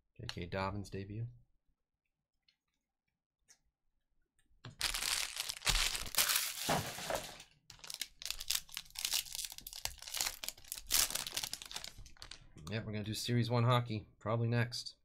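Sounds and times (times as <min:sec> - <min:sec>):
plastic wrapper crinkling and tearing: 0:04.7 - 0:12.5.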